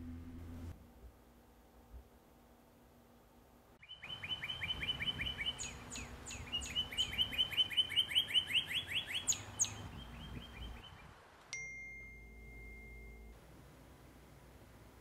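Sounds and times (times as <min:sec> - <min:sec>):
higher falling bird calls: 0:03.8 - 0:11.2.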